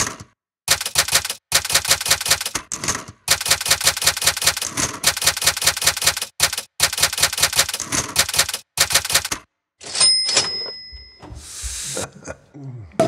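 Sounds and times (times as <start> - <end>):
typewriter keys striking: 0.7 - 2.7, 3.3 - 9.4.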